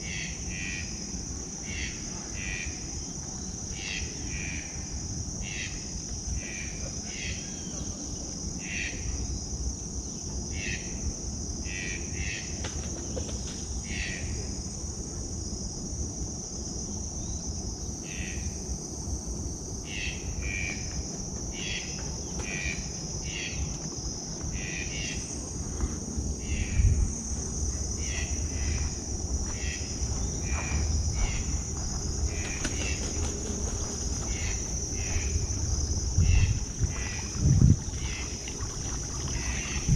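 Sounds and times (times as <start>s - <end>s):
crickets trilling: 0.0s - 39.9s
low rumble: 25.2s - 39.9s.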